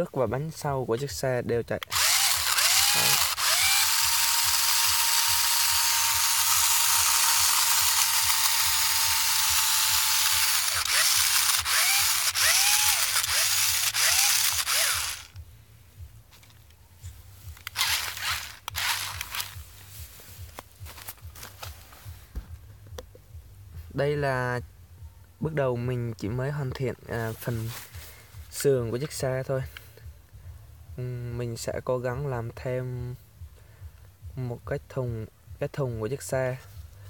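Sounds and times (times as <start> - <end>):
rc truck motors whirring: 1.8 - 15.4, 17.6 - 19.6
steady motor whine: 1.9 - 15.4, 17.6 - 19.6.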